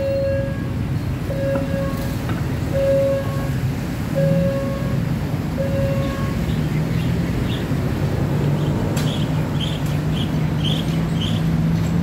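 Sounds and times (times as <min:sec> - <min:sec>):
road traffic engines rumbling: 0:00.0 - 0:12.0
small birds chirping: 0:08.6 - 0:11.5.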